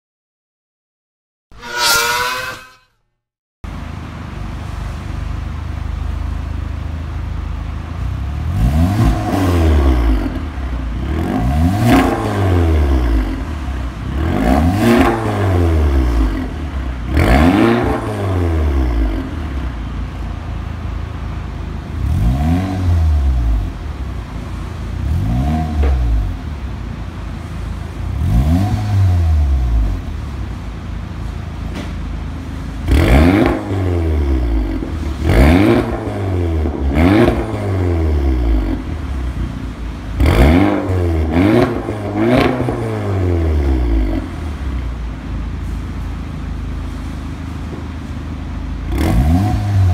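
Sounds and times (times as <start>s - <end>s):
car engine revving: 8.0s - 19.8s, 21.8s - 26.8s, 27.4s - 30.6s, 32.8s - 45.0s, 48.9s - 49.9s.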